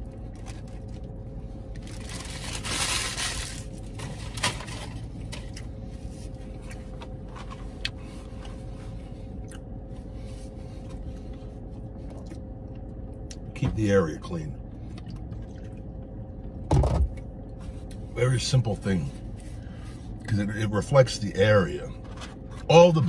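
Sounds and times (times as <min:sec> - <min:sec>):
car interior hum: 0:00.0 - 0:23.0
paper wrapper rustling: 0:01.8 - 0:04.9
chewing crunches: 0:09.4 - 0:09.8.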